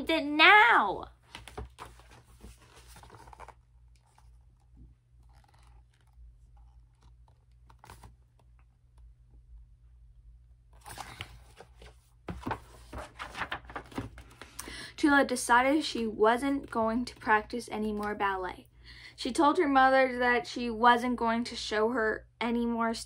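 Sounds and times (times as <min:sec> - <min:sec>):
paper rustling: 0:01.2 - 0:08.7, 0:10.7 - 0:14.6.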